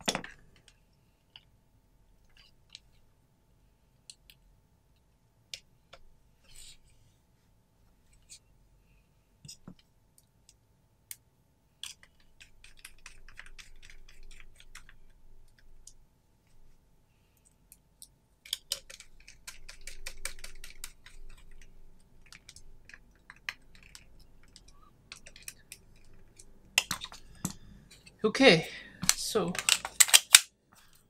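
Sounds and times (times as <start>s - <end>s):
pistol slide clicks and scrapes: 29.6s - 30.5s.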